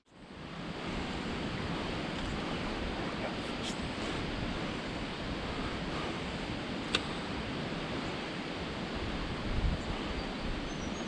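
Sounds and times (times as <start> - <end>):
creek rushing: 0.1 - 11.0
sharp click: 6.9 - 7.1.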